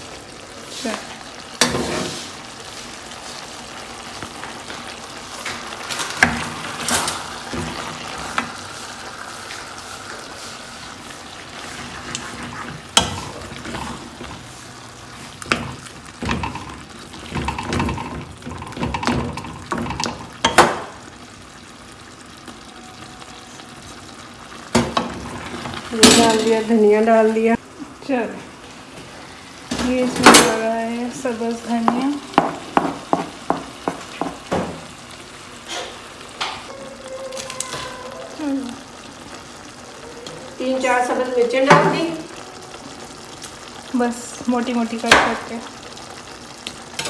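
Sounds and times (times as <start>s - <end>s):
curry sizzling in a pot: 0.0s - 47.0s
wooden spoon knocking and scraping pot: 15.4s - 20.9s, 31.8s - 34.7s.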